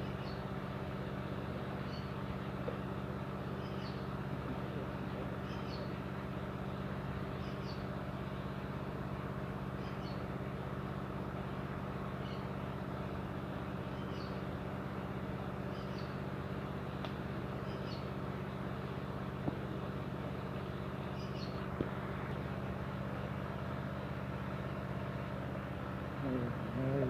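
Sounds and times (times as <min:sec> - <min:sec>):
faint bird chirps: 0:00.0 - 0:00.6, 0:01.7 - 0:02.3, 0:03.5 - 0:04.2, 0:05.1 - 0:06.1, 0:07.3 - 0:07.9, 0:09.6 - 0:10.3, 0:12.1 - 0:12.8, 0:13.8 - 0:14.5, 0:15.5 - 0:16.3, 0:17.4 - 0:18.2, 0:20.7 - 0:21.7
low mechanical hum: 0:00.0 - 0:27.0.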